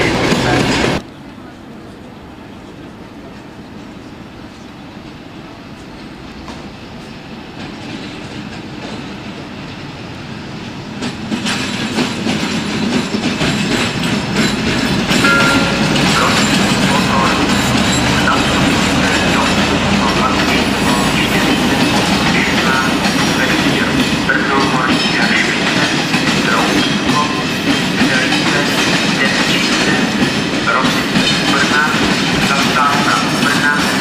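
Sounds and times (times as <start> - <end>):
train wheels clicking over rail joints: 10.6 - 34.0.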